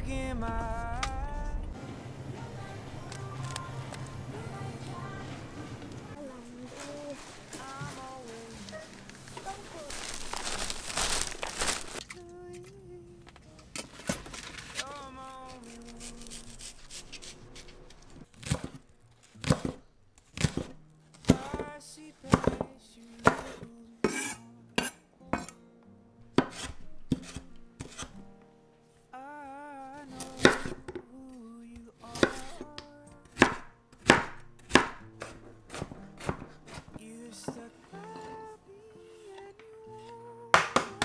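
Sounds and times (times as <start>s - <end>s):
soft background music: 0.0s - 17.7s, 18.3s - 41.0s
knife chopping on wooden board: 19.4s - 19.8s, 22.3s - 24.2s, 26.4s - 28.1s, 30.4s - 31.0s, 33.4s - 37.0s.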